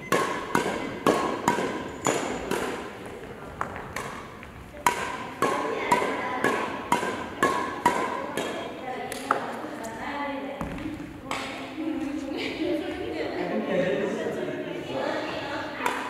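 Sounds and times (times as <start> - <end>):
rackets hitting shuttlecock: 0.0 - 9.6, 10.6 - 11.8, 15.8 - 16.0.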